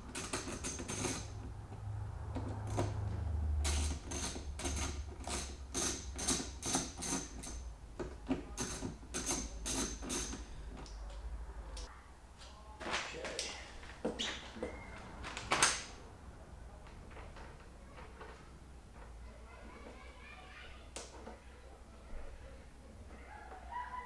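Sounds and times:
ratchet tool clicking: 0:03.6 - 0:07.7.

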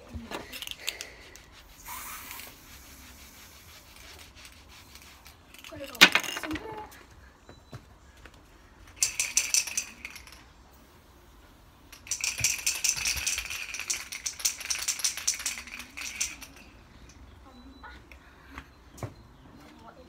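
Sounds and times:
aerosol can ball rattling: 0:00.4 - 0:06.5, 0:09.0 - 0:10.4, 0:11.9 - 0:16.6.

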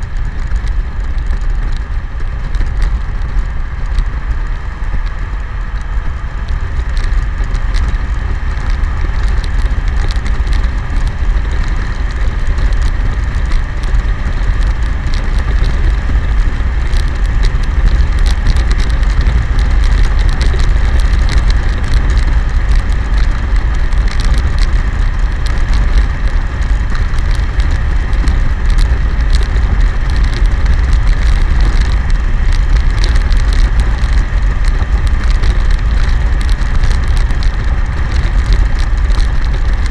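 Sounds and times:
microphone crackles: 0:00.0 - 0:39.9
motorcycle engine cruising: 0:00.0 - 0:39.9
wind buffeting microphone: 0:00.0 - 0:39.9.

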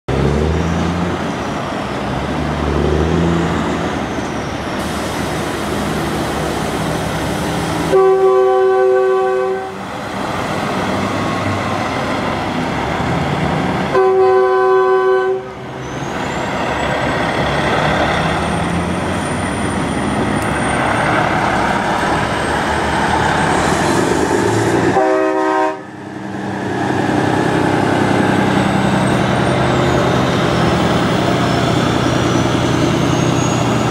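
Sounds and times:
diesel trucks driving past: 0:00.1 - 0:33.9
truck train horn blasts: 0:07.8 - 0:09.9, 0:13.9 - 0:15.7, 0:24.8 - 0:26.1.

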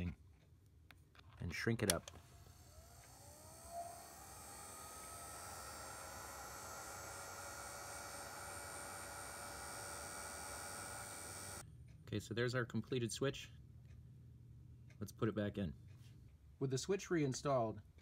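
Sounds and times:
heat gun fan whine and hiss: 0:02.1 - 0:11.6.

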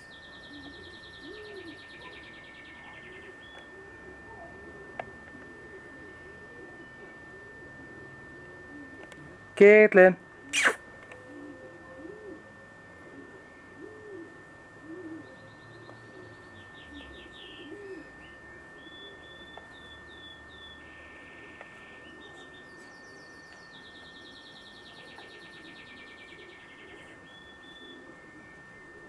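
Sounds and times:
dove cooing: 0:00.0 - 0:09.5, 0:10.4 - 0:29.0
songbirds chirping and trilling: 0:00.0 - 0:09.5, 0:10.4 - 0:29.0
faint high whine: 0:00.0 - 0:29.0.

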